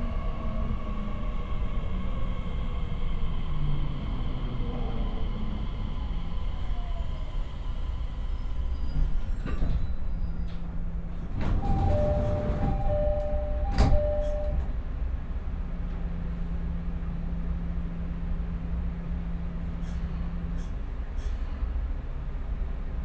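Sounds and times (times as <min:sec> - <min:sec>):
train equipment humming: 0:00.0 - 0:23.0
sliding doors thudding: 0:11.2 - 0:14.3
two-note door chime: 0:11.9 - 0:14.6.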